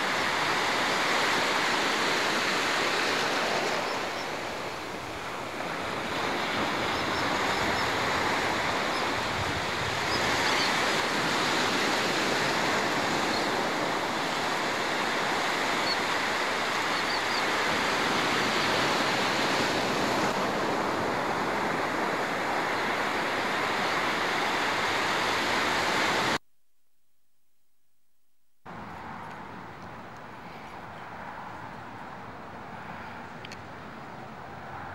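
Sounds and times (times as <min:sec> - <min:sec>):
ocean waves breaking: 0:00.0 - 0:26.4.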